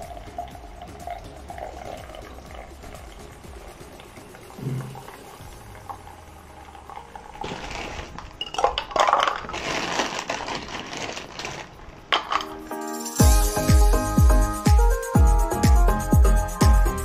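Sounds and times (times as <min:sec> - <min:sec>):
ice cubes clinking in a glass: 0:07.4 - 0:12.5.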